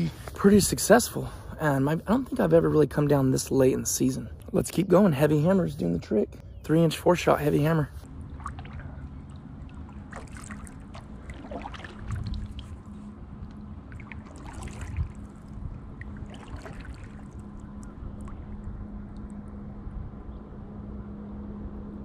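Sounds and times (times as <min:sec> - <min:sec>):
water trickling off paddle: 0:07.2 - 0:19.4
kayak paddle splashing: 0:07.9 - 0:18.7.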